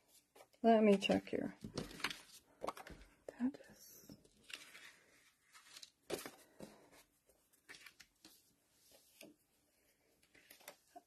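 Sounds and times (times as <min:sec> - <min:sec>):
paper rustling and tapping: 0:00.4 - 0:03.1.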